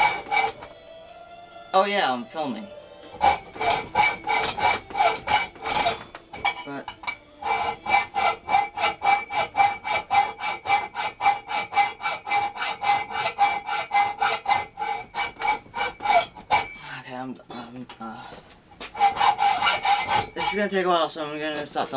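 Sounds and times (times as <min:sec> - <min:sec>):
hacksaw cutting: 0:00.0 - 0:00.7, 0:03.1 - 0:16.8, 0:18.9 - 0:20.7.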